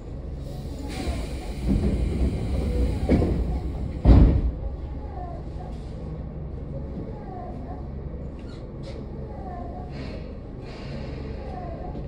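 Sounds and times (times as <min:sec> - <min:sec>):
train car low hum: 0:00.0 - 0:12.0
sliding train doors closing: 0:00.4 - 0:05.1.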